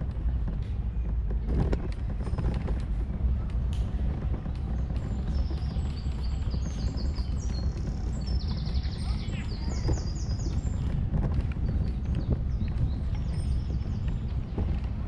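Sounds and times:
steady low rumble: 0:00.0 - 0:15.0
songbirds chirping and trilling: 0:04.1 - 0:15.0.

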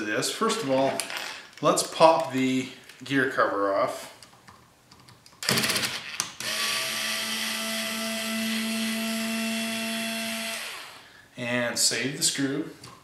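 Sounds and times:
power screwdriver motor whine: 0:05.4 - 0:11.0.

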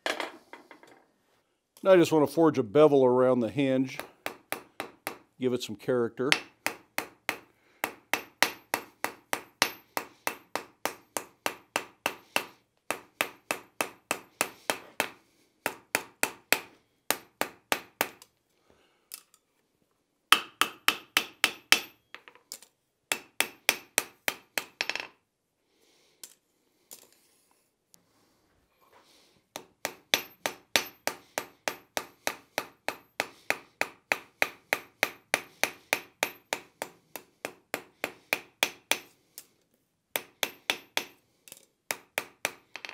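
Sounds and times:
hammer striking iron on anvil: 0:03.9 - 0:05.3, 0:06.3 - 0:18.2, 0:20.3 - 0:22.0, 0:23.1 - 0:25.0, 0:29.6 - 0:39.1, 0:40.2 - 0:41.2, 0:41.9 - 0:42.9.

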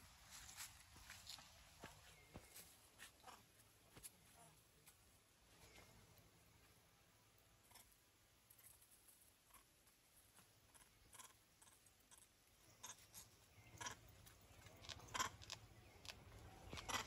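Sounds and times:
faint clicks and crackles: 0:07.7 - 0:17.0.

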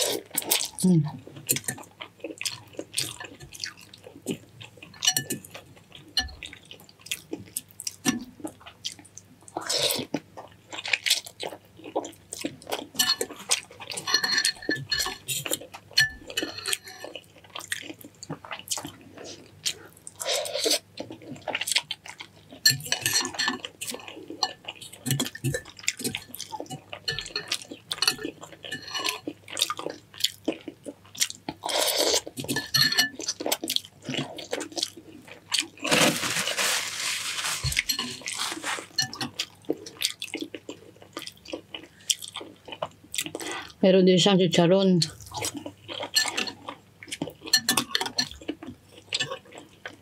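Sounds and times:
mouth eating sounds: 0:00.0 - 0:05.7
spoon clinking against bowl: 0:14.0 - 0:17.0, 0:25.5 - 0:29.2, 0:32.4 - 0:33.2.

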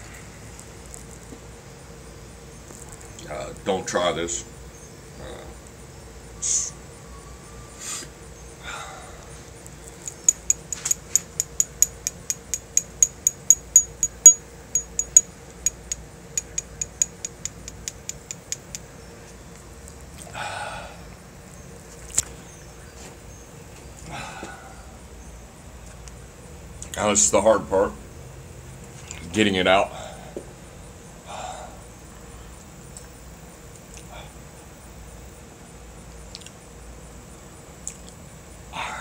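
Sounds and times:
metal tool tapping on nail: 0:10.0 - 0:18.8.

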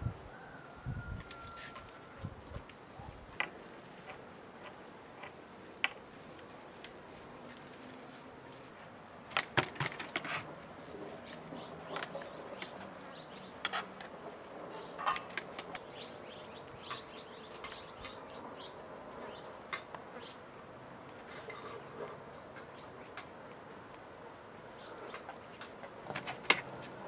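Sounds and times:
sharp clicks and knocks: 0:09.3 - 0:10.4, 0:14.7 - 0:15.8
birds chirping: 0:10.8 - 0:21.3.

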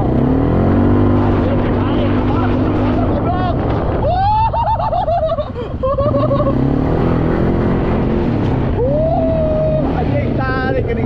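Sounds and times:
vehicle engine running: 0:00.0 - 0:04.1, 0:05.8 - 0:11.0.

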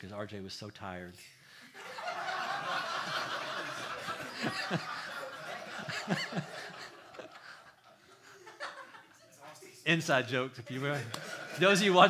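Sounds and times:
room of people laughing: 0:01.6 - 0:09.8, 0:10.6 - 0:12.0.

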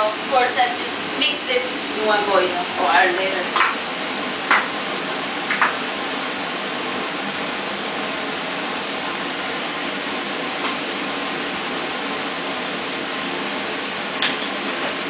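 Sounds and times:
range hood fan whooshing: 0:00.0 - 0:15.0.

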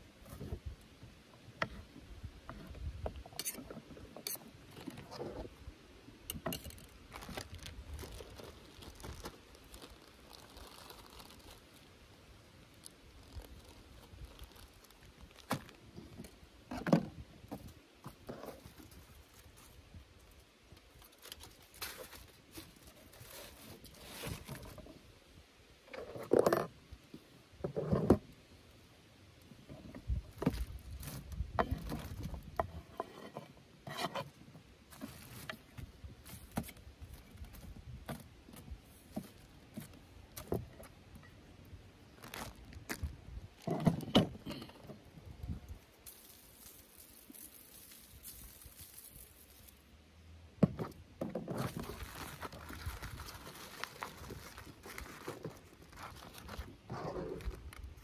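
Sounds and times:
plastic bag and foil rustling: 0:06.6 - 0:16.4, 0:18.3 - 0:24.9, 0:30.3 - 0:32.6, 0:34.9 - 0:37.8, 0:42.0 - 0:43.7, 0:45.4 - 0:49.9, 0:51.5 - 0:58.0.

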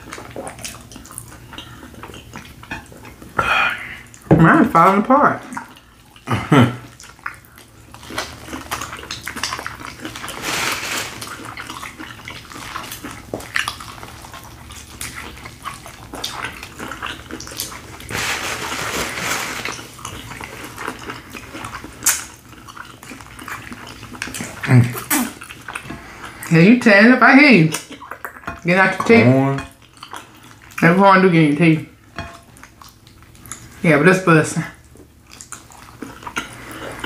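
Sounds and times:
biting and chewing food: 0:00.0 - 0:03.4, 0:05.5 - 0:26.5, 0:34.8 - 0:37.0.

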